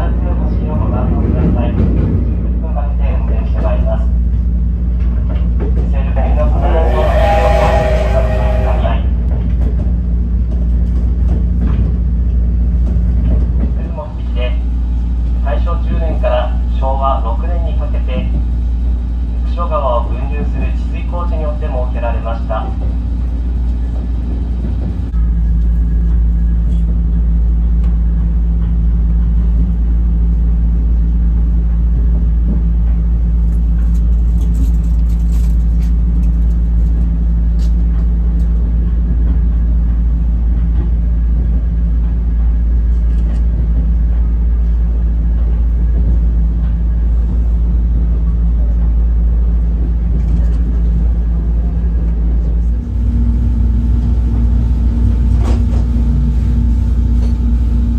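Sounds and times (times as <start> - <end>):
train carriage rumbling on rails: 0.0 - 57.9
low drone: 6.2 - 9.4, 51.6 - 57.9.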